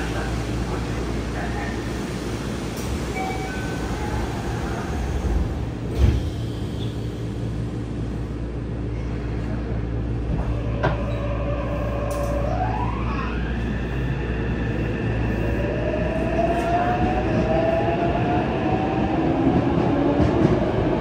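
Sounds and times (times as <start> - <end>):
sliding train doors closing: 0.0 - 7.1, 10.2 - 12.5
train inverter whine: 9.6 - 21.0.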